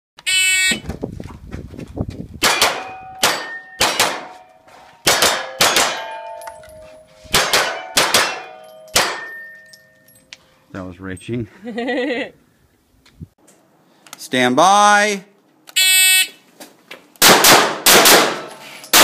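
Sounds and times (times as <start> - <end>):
pistol shots: 2.4 - 4.4, 5.0 - 6.2, 7.3 - 9.4, 17.2 - 19.0
steel targets ringing: 2.4 - 10.3.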